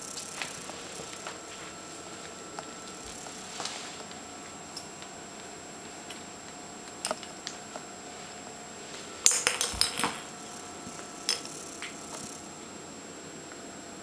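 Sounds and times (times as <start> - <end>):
toy ball clinking on wooden floor: 9.2 - 10.4, 11.2 - 12.3.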